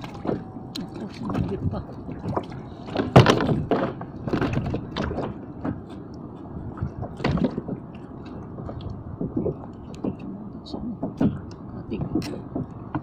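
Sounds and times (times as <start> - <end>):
fishing gear knocking and scraping: 2.2 - 10.3.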